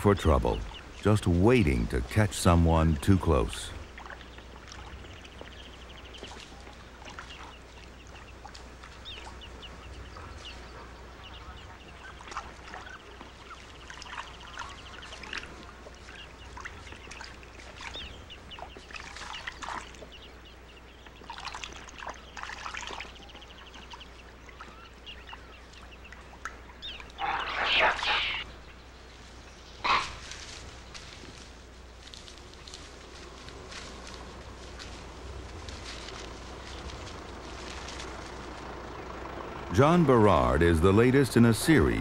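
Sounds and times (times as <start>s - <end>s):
birds chirping and trilling: 0.0s - 42.0s
low steady hum: 0.0s - 42.0s
harsh animal call: 27.1s - 28.5s, 29.8s - 30.2s.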